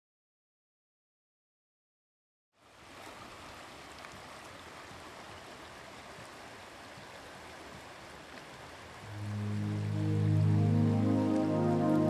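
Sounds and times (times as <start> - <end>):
river water running over rocks: 2.6 - 12.0.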